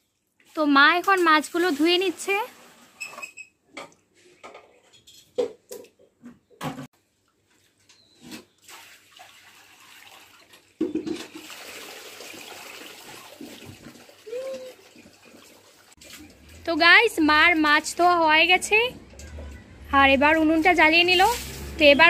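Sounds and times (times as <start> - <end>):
water rushing: 21.0 - 22.0.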